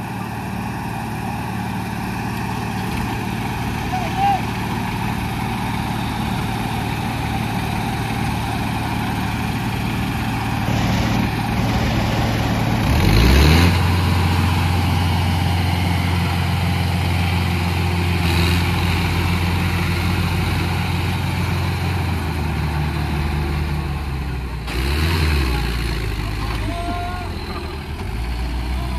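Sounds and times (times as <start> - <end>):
tractor diesel engines under load: 0.0 - 28.9.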